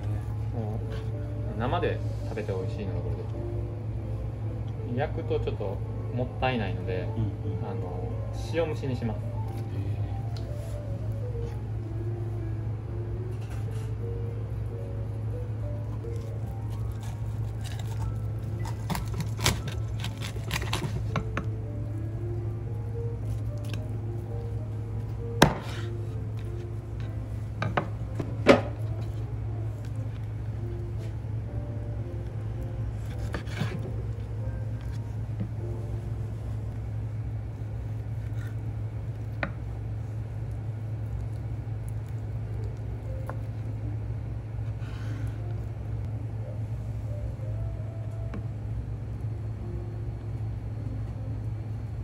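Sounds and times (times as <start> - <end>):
steady low hum: 0.0 - 52.0
knife cracking through fish bones: 16.7 - 21.3
knife cutting fish on board: 18.6 - 21.3, 25.4 - 25.9, 33.0 - 34.0
knife scraping rasp: 33.0 - 33.9.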